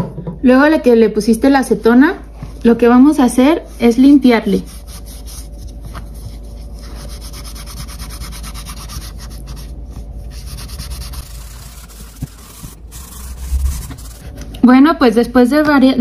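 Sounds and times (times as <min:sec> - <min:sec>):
cotton scrubbing rubber sole: 0:10.4 - 0:14.4.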